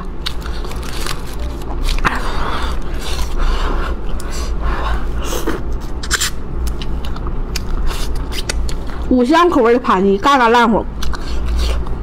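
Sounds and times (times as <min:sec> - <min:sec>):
steady low hum: 0:00.0 - 0:12.0
chewing and smacking: 0:05.7 - 0:09.1, 0:11.0 - 0:12.0.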